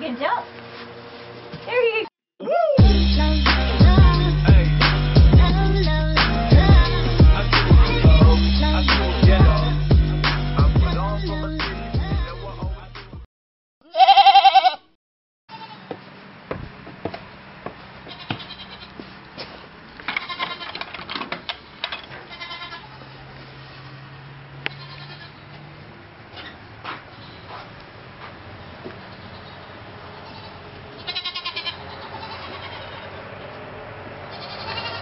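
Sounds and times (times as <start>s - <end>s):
held bass notes: 2.8s - 13.2s
kick drums: 6.6s - 8.4s
goats bleating: 13.8s - 14.9s, 15.5s - 15.9s, 18.1s - 19.0s, 20.1s - 20.8s, 22.2s - 23.2s, 24.7s - 25.5s, 29.1s - 33.6s, 34.2s - 35.0s.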